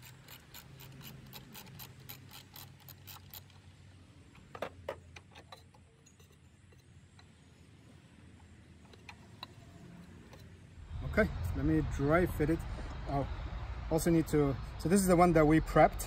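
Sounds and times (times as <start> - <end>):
rapid wrench clicking: 0.0 - 3.8.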